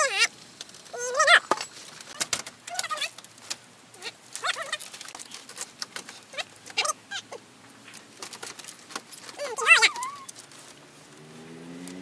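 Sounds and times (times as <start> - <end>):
wavering animal calls: 9.4 - 10.3.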